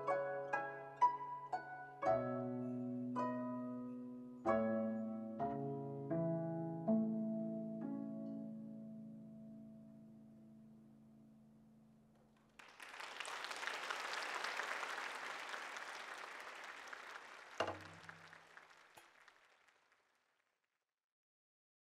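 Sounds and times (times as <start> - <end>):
koto plucked notes: 0.0 - 9.0
audience applause: 12.6 - 20.0.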